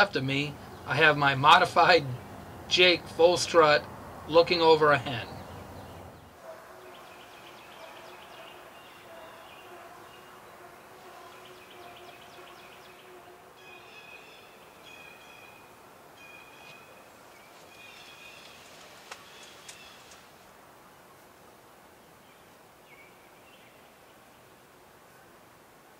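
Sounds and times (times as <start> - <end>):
songbirds singing: 0.0 - 20.3, 22.0 - 24.6
twig snaps: 18.4 - 20.3.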